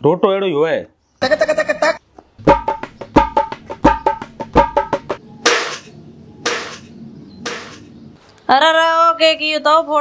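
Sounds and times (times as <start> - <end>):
quick wood-block knocks: 2.4 - 5.9, 6.5 - 6.9, 7.5 - 7.8.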